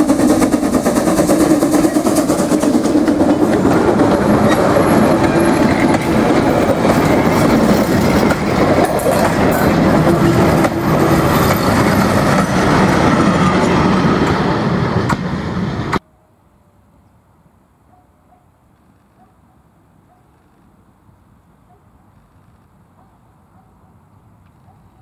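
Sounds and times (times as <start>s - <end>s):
train wheels clacking over rail joints: 0.0s - 14.4s.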